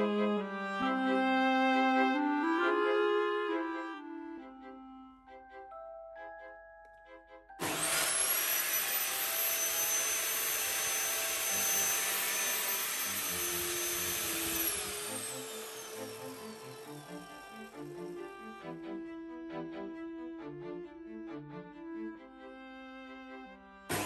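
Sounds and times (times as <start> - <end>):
table saw motor whining: 7.6 - 18.8.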